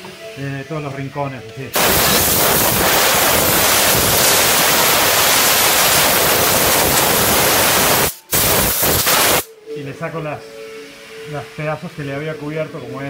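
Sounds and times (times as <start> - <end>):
compressed air blow gun blasting: 1.8 - 9.5.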